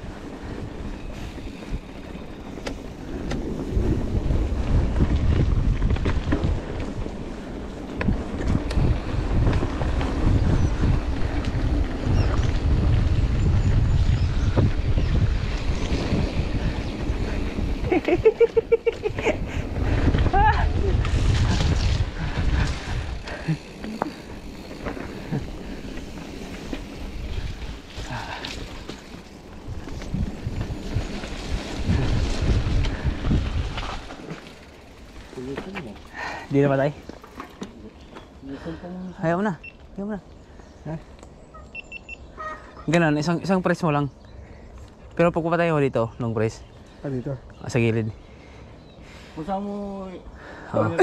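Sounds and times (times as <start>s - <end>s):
bike clicks and rattles: 0.0s - 38.4s
wind buffeting microphone: 0.0s - 38.8s
bike tyres rolling on dirt: 0.0s - 41.6s.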